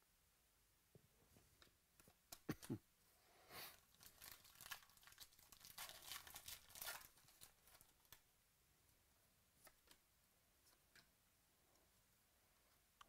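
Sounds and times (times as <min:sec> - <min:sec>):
plastic wrapper tearing and crinkling: 0:03.8 - 0:08.2.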